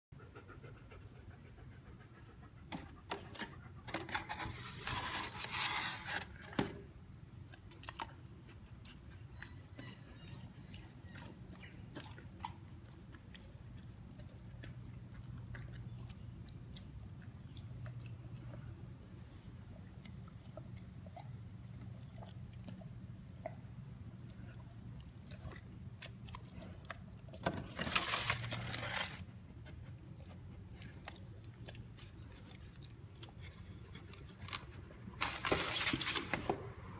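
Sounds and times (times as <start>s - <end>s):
dog panting: 0.2s - 4.0s
crackling and rustling: 3.1s - 6.9s, 26.4s - 36.6s
dog chewing and smacking: 7.3s - 27.9s, 29.2s - 35.4s.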